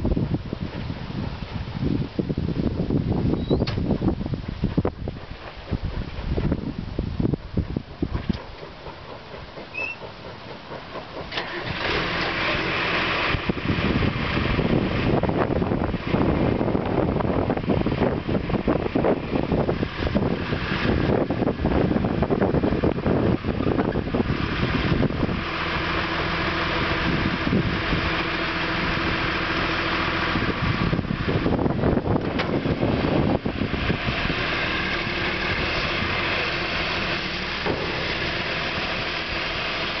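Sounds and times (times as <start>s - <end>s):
diesel engine cranking and starting: 0.0s - 40.0s
hydraulics raising bucket: 8.0s - 29.2s, 29.8s - 40.0s.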